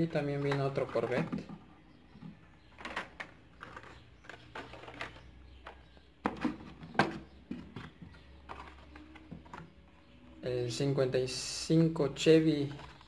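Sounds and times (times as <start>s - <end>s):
plastic blister packs clacking: 0.0s - 9.8s.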